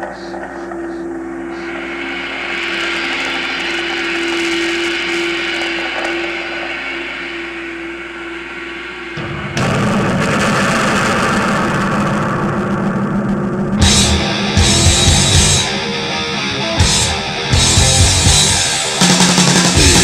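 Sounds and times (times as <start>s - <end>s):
droning held tone: 0.0s - 20.0s
metal band playing: 9.1s - 20.0s.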